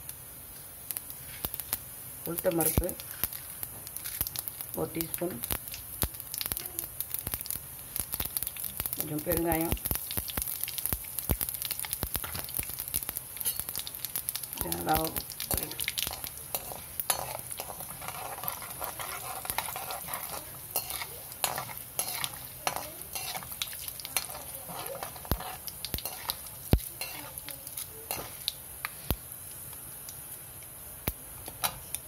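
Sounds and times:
hot oil sizzling: 0:00.0 - 0:32.0
metal spoon scraping pan: 0:15.5 - 0:28.4.

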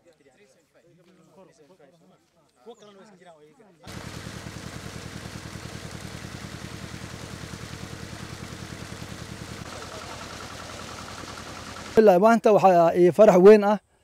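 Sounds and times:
pump engine beating: 0:03.9 - 0:12.0
water rushing from pipe: 0:03.9 - 0:12.0.

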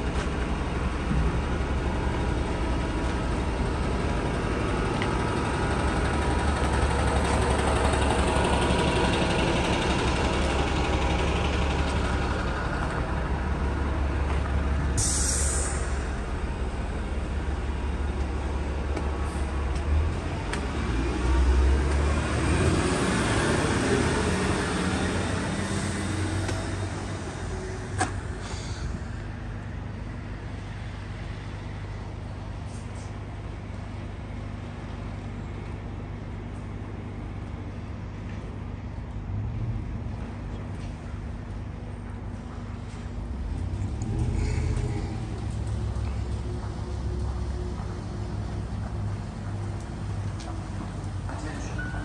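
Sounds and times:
heavy vehicle rumbling: 0:00.0 - 0:52.0
air hiss: 0:15.0 - 0:16.1.

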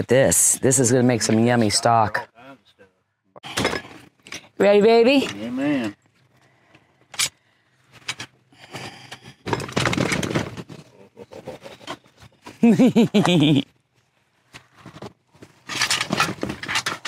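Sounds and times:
food rattling and scraping spill: 0:09.5 - 0:10.8, 0:14.8 - 0:17.0.

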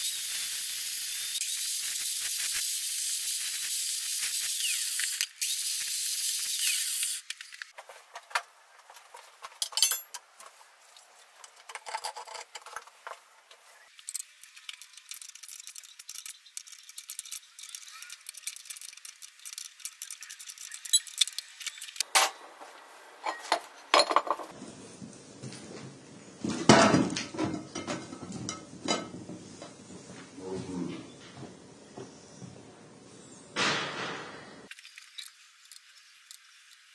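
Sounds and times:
angle grinder cutting steel: 0:00.0 - 0:07.2
steel parts clinking: 0:09.5 - 0:10.2, 0:14.0 - 0:22.4.

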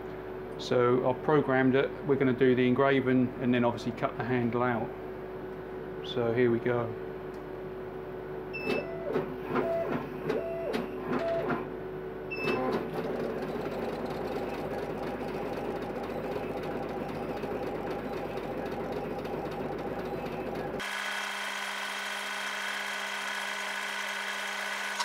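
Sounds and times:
laser cutter gantry whining: 0:12.5 - 0:25.0.

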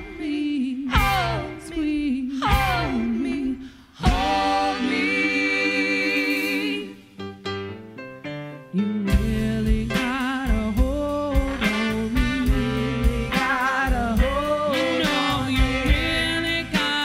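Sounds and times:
woman singing with vibrato: 0:00.0 - 0:07.0
drum beat: 0:02.5 - 0:03.0, 0:04.1 - 0:05.0, 0:09.2 - 0:17.0
saxophone and trombone horns: 0:10.8 - 0:17.0.

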